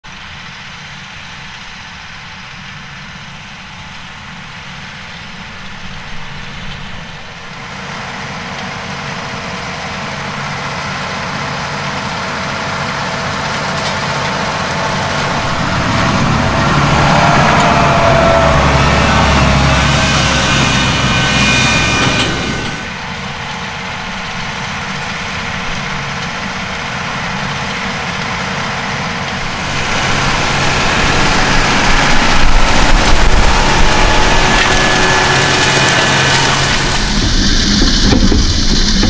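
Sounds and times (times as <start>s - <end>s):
tractor engine under load: 0.0s - 39.0s.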